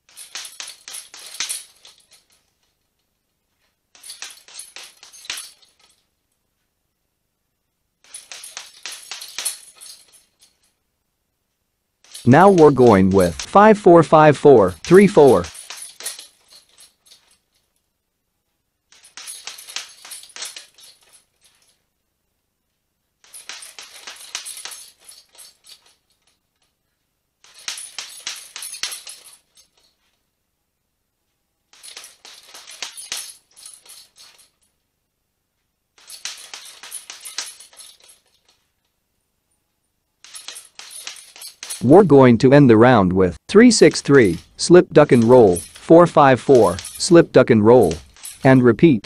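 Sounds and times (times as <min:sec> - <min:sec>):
chain jingling: 0:00.0 - 0:02.6, 0:04.0 - 0:06.0, 0:08.0 - 0:10.7, 0:12.0 - 0:13.5, 0:14.7 - 0:17.7, 0:18.9 - 0:21.8, 0:23.2 - 0:26.4, 0:27.4 - 0:30.0, 0:31.7 - 0:34.7, 0:36.0 - 0:38.6, 0:40.2 - 0:41.9, 0:44.3 - 0:45.8, 0:46.6 - 0:47.0, 0:47.8 - 0:48.7.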